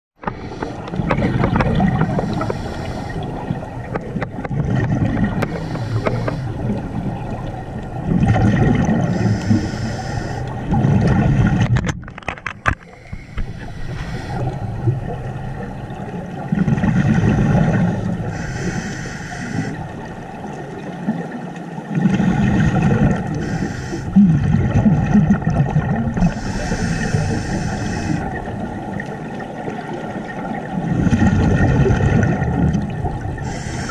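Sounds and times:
bubbling exhalations underwater: 0.9s - 2.6s, 3.4s - 7.4s, 8.0s - 9.6s, 21.9s - 23.4s, 24.2s - 28.6s, 30.8s - 33.9s
hissing regulator inhalations: 2.1s - 3.6s, 5.4s - 6.7s, 9.1s - 10.6s, 12.8s - 14.8s, 18.3s - 20.0s, 23.4s - 24.2s, 26.2s - 28.4s, 33.4s - 33.9s.

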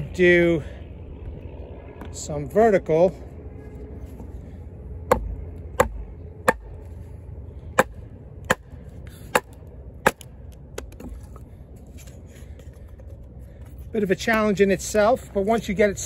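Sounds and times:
axe knocking stick against wood: 5.1s - 6.7s.

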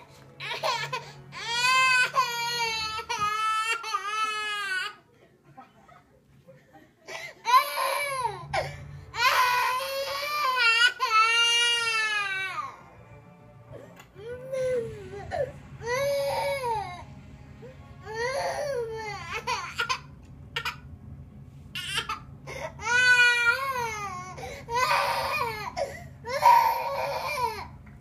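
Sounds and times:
toddler crying: 0.4s - 5.0s, 7.4s - 12.8s, 18.1s - 20.0s, 22.8s - 27.7s.

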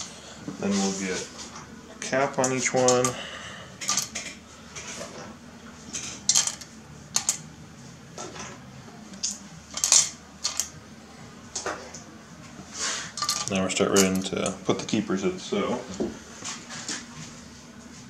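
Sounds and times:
metal parts clinking: 3.8s - 4.3s, 6.3s - 7.4s, 9.2s - 10.7s, 13.2s - 14.3s.

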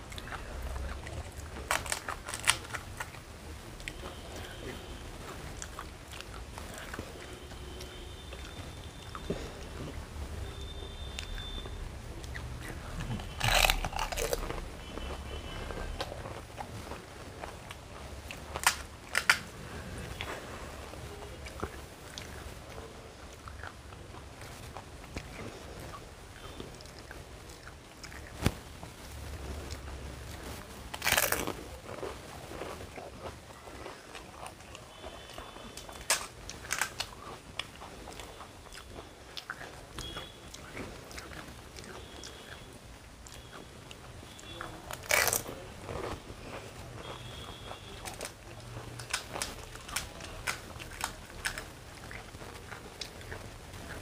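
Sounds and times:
crisp shell crackling: 0.0s - 3.3s, 12.4s - 19.6s, 35.6s - 37.4s, 44.8s - 54.0s
close-up chewing: 0.0s - 54.0s
loud crunch of biting: 0.1s - 3.2s, 12.2s - 16.8s, 18.3s - 19.5s, 29.7s - 42.6s, 44.4s - 54.0s
crisp shell cracking: 1.2s - 3.1s, 13.2s - 14.6s, 18.5s - 19.5s, 49.0s - 51.7s.

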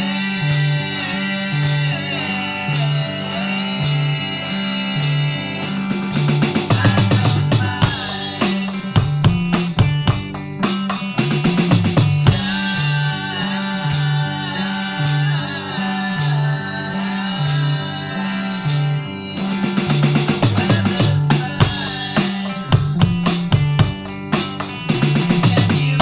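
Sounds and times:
electronic drum kit playing: 0.0s - 16.6s, 17.4s - 17.9s, 18.6s - 26.0s
backing track of guitar and bass: 0.0s - 26.0s.

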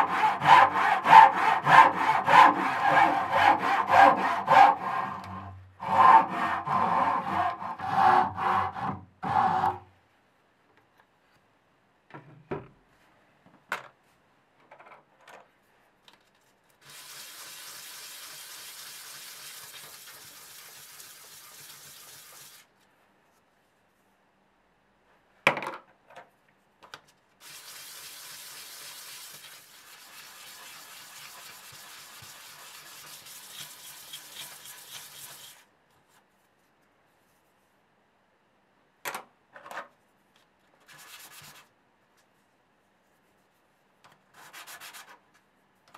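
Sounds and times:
wood sanding on sandpaper: 0.0s - 9.7s, 16.8s - 22.7s, 27.4s - 35.7s.

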